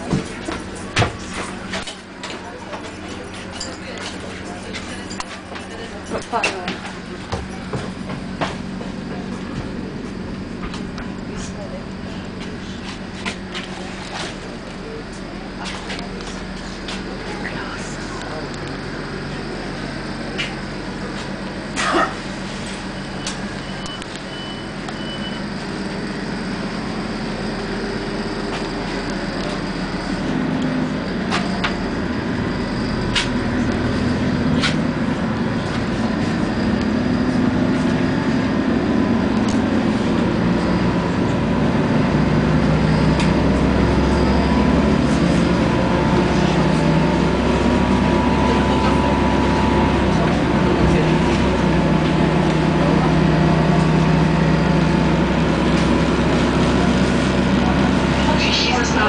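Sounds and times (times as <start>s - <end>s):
train rumble: 0.0s - 59.0s
high beeps: 23.0s - 25.5s.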